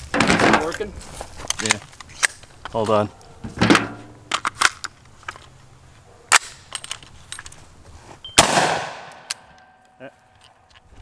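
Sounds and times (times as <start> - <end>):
loud gunshot: 8.4 - 9.3.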